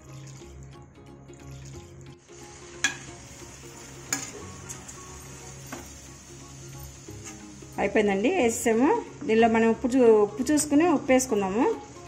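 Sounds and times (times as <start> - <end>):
faint background music: 0.0 - 12.0
gravy sizzling: 0.0 - 12.0
spoon clinking against pot: 2.8 - 3.1, 4.1 - 4.4.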